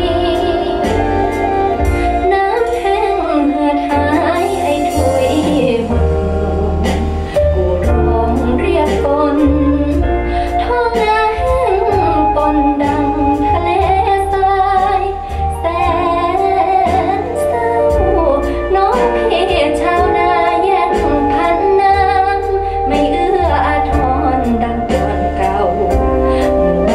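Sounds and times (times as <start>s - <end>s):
bass line: 0.0s - 26.9s
woman singing pop song with band: 0.0s - 26.9s.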